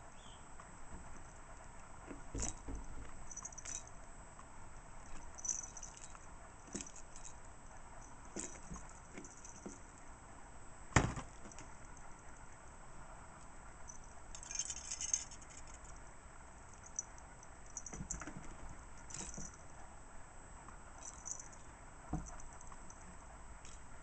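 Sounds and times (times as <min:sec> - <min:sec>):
cat toy bell jingling: 0:03.3 - 0:03.9, 0:05.1 - 0:07.4, 0:13.9 - 0:16.0, 0:16.7 - 0:18.4, 0:19.0 - 0:19.6, 0:21.0 - 0:21.6.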